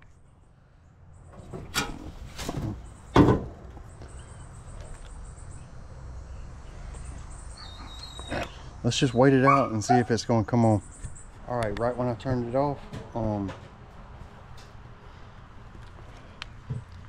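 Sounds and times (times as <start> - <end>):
knocks and clunks: 1.3 - 4.2.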